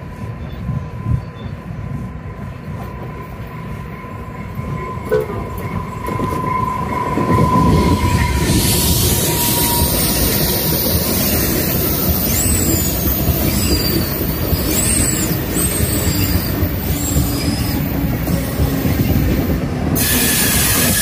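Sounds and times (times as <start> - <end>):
train wheels rumbling and hissing: 0.0 - 21.0
high-pitched wheel squeals: 4.7 - 19.1, 20.0 - 21.0.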